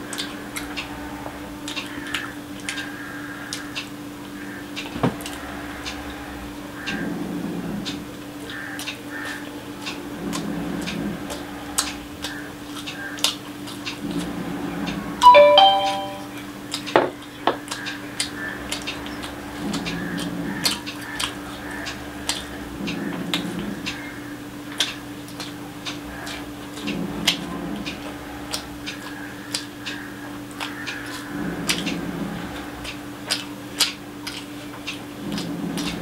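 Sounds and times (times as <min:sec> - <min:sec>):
chewing and mouth smacks: 0:07.9 - 0:14.3, 0:17.6 - 0:24.0, 0:24.7 - 0:32.1, 0:32.8 - 0:36.0
fingers mixing rice on a plate: 0:24.7 - 0:36.0.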